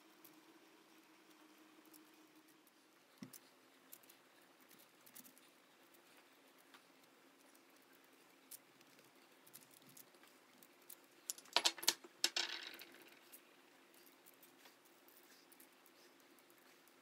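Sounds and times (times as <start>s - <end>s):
seeds rattling in tin: 8.3s - 17.0s.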